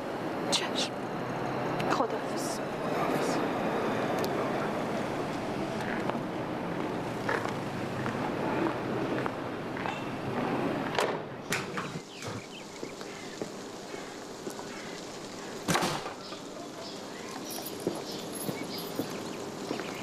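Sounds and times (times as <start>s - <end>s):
footsteps on paved path: 4.2s - 20.0s.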